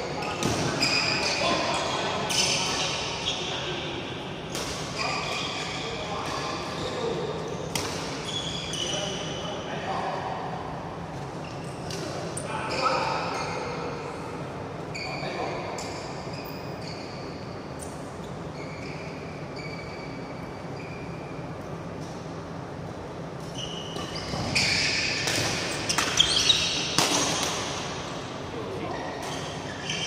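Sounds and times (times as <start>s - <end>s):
shoes squeaking on court: 0.2s - 3.5s, 7.7s - 9.3s, 14.9s - 22.1s, 23.4s - 27.9s, 28.8s - 30.0s.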